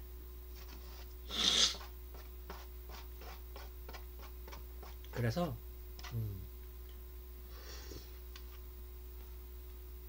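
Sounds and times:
slurping noodles: 1.3 - 1.9.

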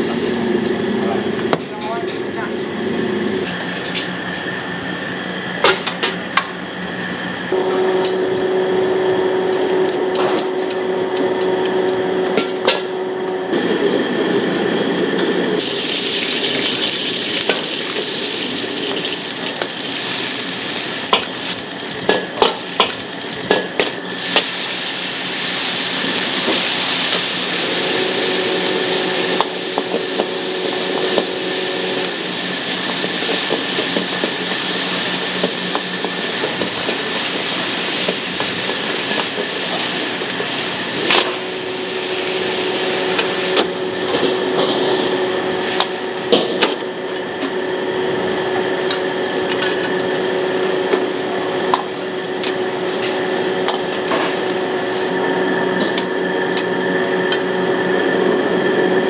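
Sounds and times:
food sizzling in a wok: 15.6 - 46.6.

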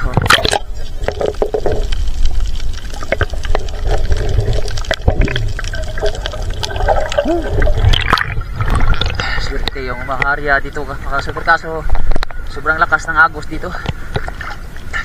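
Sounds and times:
water splash: 0.0 - 1.8, 2.4 - 9.5
muffled underwater sloshing: 0.0 - 15.0.

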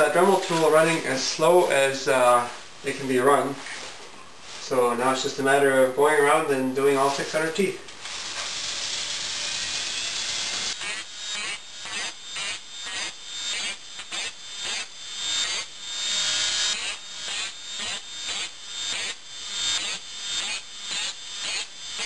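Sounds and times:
rotary tool grinding saw teeth: 8.1 - 22.0.

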